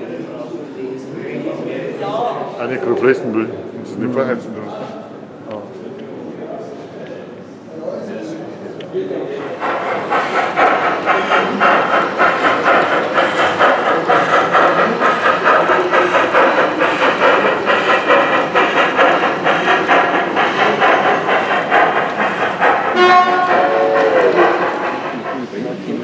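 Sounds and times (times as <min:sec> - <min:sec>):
model steam locomotive chuffing: 0:08.3 - 0:26.0
train rolling clatter: 0:08.3 - 0:26.0.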